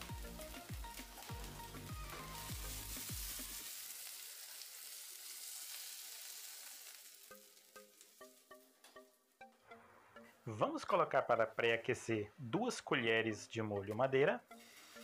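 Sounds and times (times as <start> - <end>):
music with heavy beat: 0.0 - 3.3
onions sizzling in a frying pan: 0.0 - 9.1, 14.5 - 15.0.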